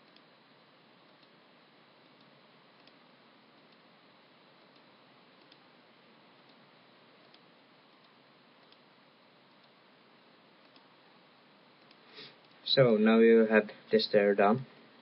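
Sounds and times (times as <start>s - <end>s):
computer mouse clicks: 0.0s - 0.3s, 1.0s - 1.4s, 2.0s - 3.9s, 4.6s - 5.7s, 7.2s - 8.9s, 9.5s - 9.8s, 10.6s - 11.0s, 11.8s - 12.6s
faint microphone hiss: 0.0s - 15.0s.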